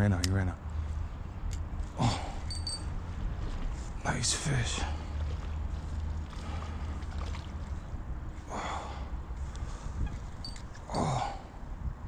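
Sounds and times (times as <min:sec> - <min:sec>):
wind rumble on microphone: 0:02.7 - 0:12.0.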